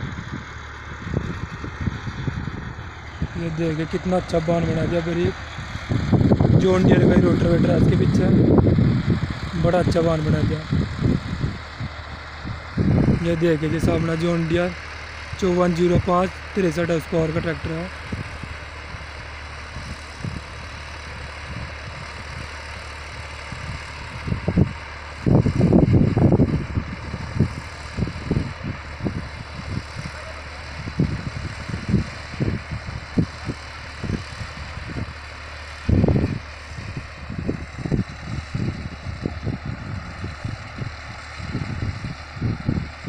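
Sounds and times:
tractor diesel engine droning: 0.0s - 43.0s
wind rumbling on microphone: 0.0s - 43.0s.

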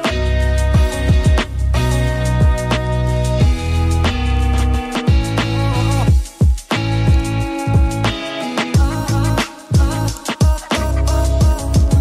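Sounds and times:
background music with steady beat: 0.0s - 12.0s
deep bass drum hits: 0.8s - 1.5s, 3.4s - 3.7s.

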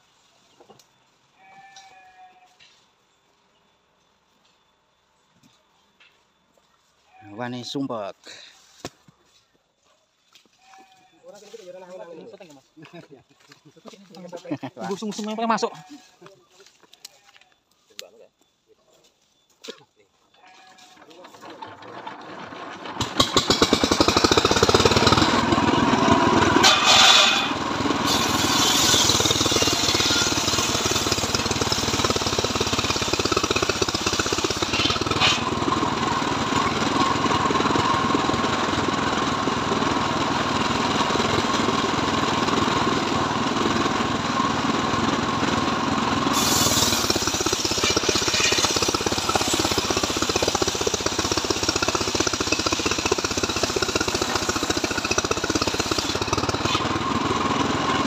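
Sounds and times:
circular sawmill cutting log: 20.8s - 58.0s.

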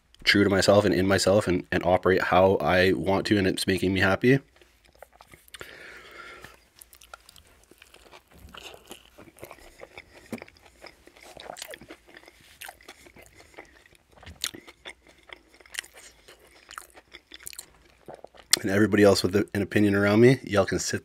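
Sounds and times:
close chewing with mouth clicks: 4.4s - 18.8s.

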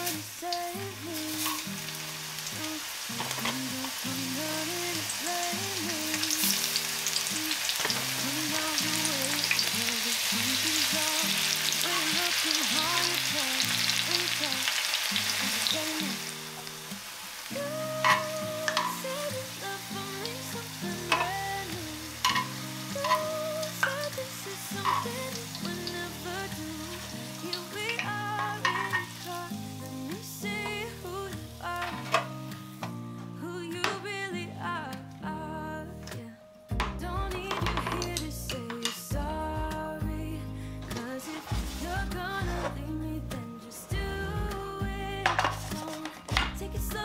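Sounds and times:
food deep-frying in oil: 0.0s - 30.0s
background music: 0.0s - 47.0s.

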